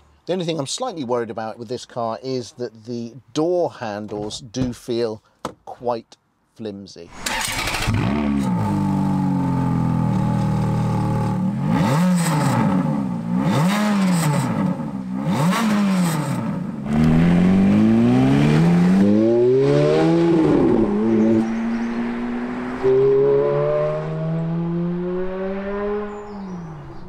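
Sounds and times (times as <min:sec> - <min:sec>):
car engine starting and revving: 0:07.1 - 0:27.0.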